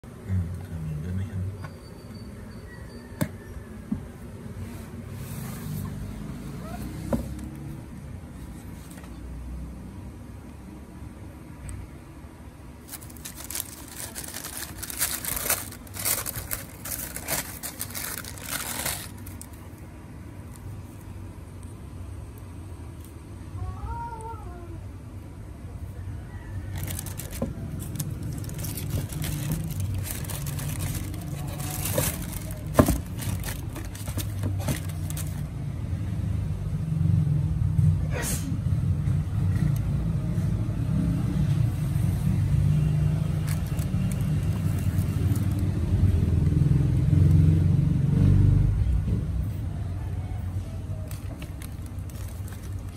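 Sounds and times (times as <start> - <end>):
low steady hum: 3.4 - 38.1
sneaker and plastic tags rustling: 12.8 - 19.7, 26.8 - 35.6, 43.2 - 45.8, 51.0 - 52.9
tissue paper crinkling: 12.8 - 19.7, 26.7 - 35.5, 43.2 - 45.6, 51.1 - 52.9.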